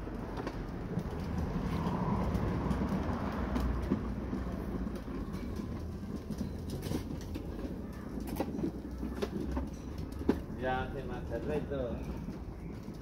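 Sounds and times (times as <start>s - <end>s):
plastic wheels rolling on hard floor: 0.0s - 13.0s.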